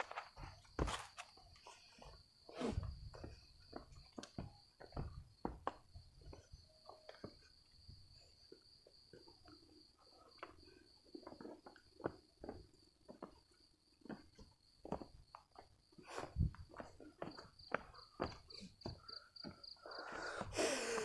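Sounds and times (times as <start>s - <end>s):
footsteps scuffing on rocky trail: 0.0s - 1.6s, 3.1s - 5.9s, 14.0s - 19.6s.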